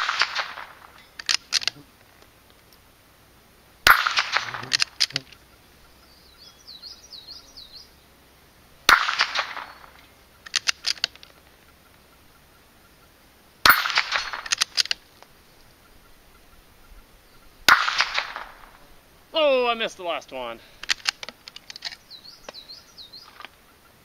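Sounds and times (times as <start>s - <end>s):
metallic clang of steel targets: 0.0s - 1.7s, 3.8s - 5.1s, 13.6s - 14.9s
rifle shots: 0.0s - 1.7s, 3.8s - 5.1s, 8.8s - 11.1s, 13.6s - 15.0s, 17.6s - 18.8s
rifle bolt clicks: 0.0s - 1.8s, 3.9s - 5.3s, 9.0s - 11.4s, 13.7s - 15.3s, 20.8s - 22.6s
bird whistling: 5.9s - 7.9s.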